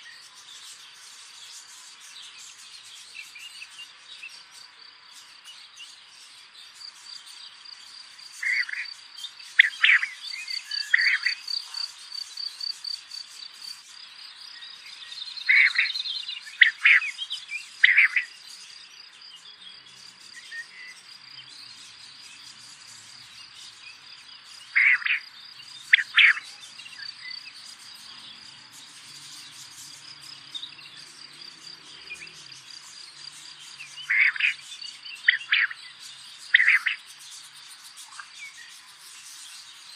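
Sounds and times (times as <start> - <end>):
insects trilling: 0.0 - 39.9
short bird calls: 24.7 - 25.2, 34.0 - 34.6, 36.5 - 37.0.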